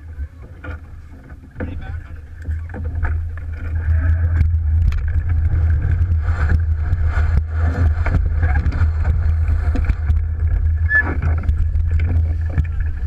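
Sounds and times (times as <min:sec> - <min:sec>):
water rushing along hull: 0:00.0 - 0:13.0
wind buffeting microphone: 0:00.0 - 0:13.0
knocks and clicks: 0:00.5 - 0:13.0.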